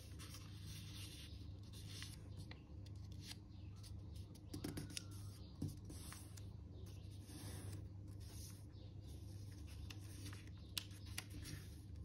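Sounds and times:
paper rustling and crinkling: 0.0 - 3.9, 9.2 - 12.0.

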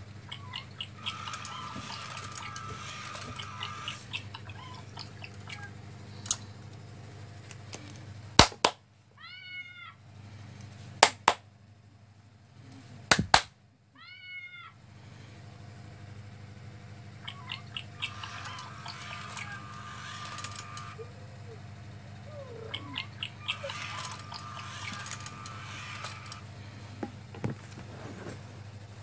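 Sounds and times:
low steady hum: 0.0 - 29.0
hands clapping: 8.4 - 8.8, 11.0 - 11.4, 13.1 - 13.5
recorded cat meow from phone: 9.2 - 10.0, 13.9 - 14.8.

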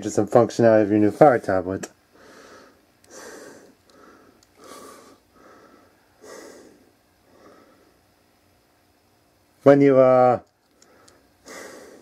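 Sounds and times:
person breathing: 2.1 - 8.0, 10.7 - 12.0.

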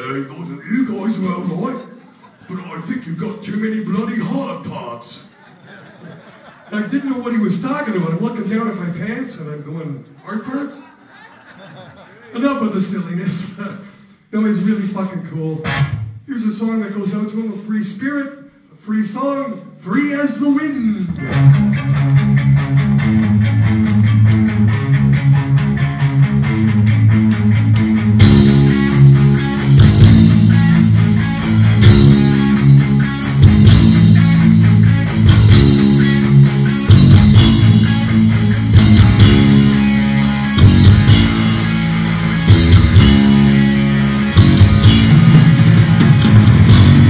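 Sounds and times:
heavy metal band playing: 15.6 - 16.1, 21.1 - 47.0
electric guitar riff: 15.6 - 16.2, 21.1 - 47.0.

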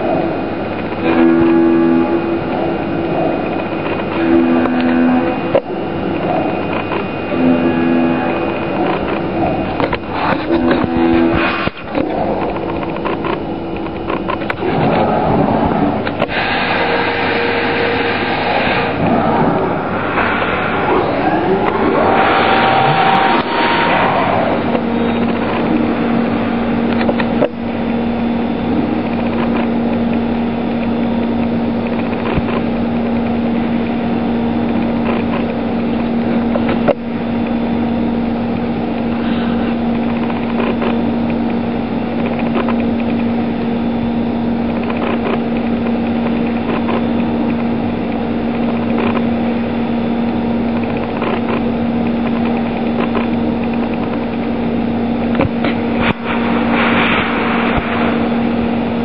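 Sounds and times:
cutter cutting metal: 0.0 - 13.3, 15.7 - 28.1
milling spindle hum: 0.0 - 59.0
coolant spray hiss: 16.3 - 19.0, 56.1 - 58.5.

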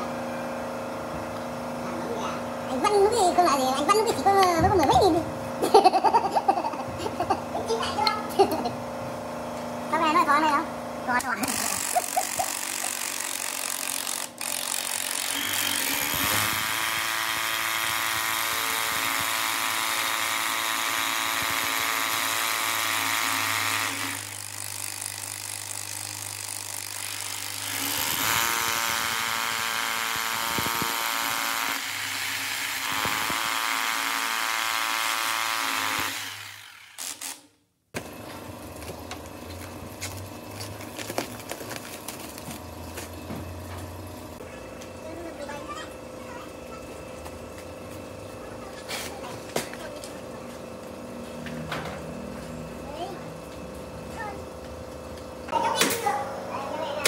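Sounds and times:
power tool motor hum: 11.2 - 44.4.

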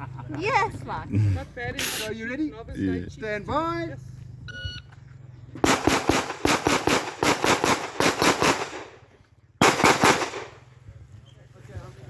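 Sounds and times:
pistol shots: 5.6 - 9.0, 9.6 - 10.6.

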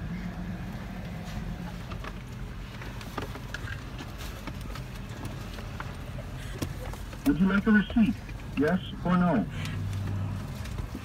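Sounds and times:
engine idling in cabin: 0.0 - 11.0
light clicks and taps: 1.9 - 8.9.

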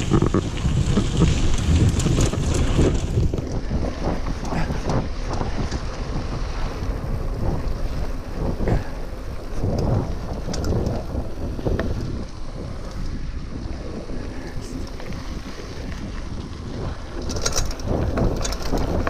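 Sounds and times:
bike jolts and rattles: 0.0 - 19.0
tyres rumbling over dirt: 0.0 - 19.0
wind buffeting microphone: 0.0 - 19.0.

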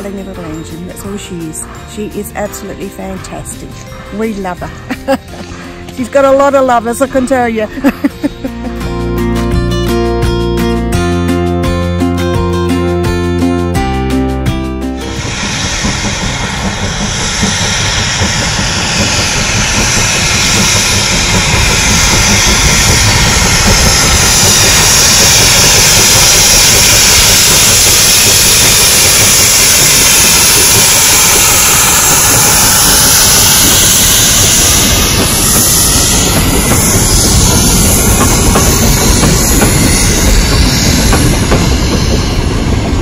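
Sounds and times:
train rumbling on rails: 0.0 - 43.0
steam hiss and exhaust: 15.0 - 43.0.

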